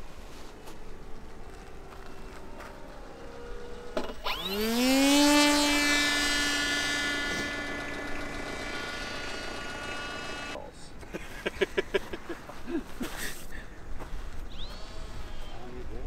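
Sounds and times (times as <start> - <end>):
electric propeller motor whine: 0.0 - 10.6, 14.3 - 16.0.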